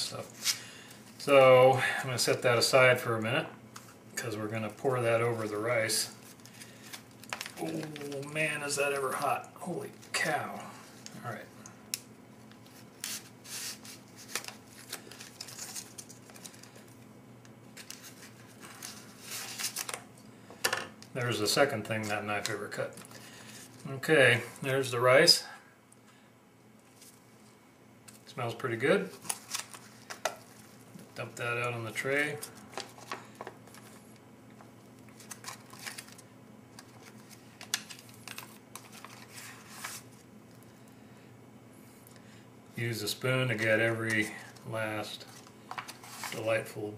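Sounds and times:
foil pouch crinkling: 0:12.6 - 0:17.0, 0:35.1 - 0:40.1
foil pouch rustle: 0:12.6 - 0:17.0.

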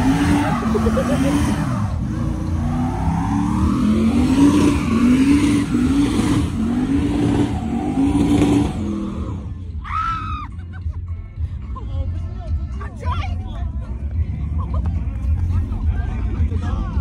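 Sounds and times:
truck engine revving hard: 0:00.0 - 0:09.6.

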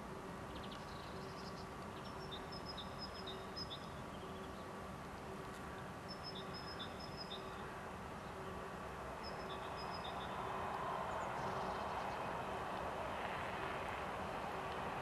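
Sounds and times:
small birds chirping: 0:00.5 - 0:04.7, 0:09.2 - 0:10.5.

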